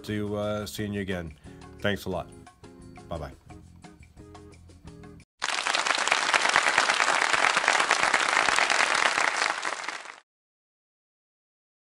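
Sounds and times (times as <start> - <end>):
crowd applause: 5.4 - 10.2.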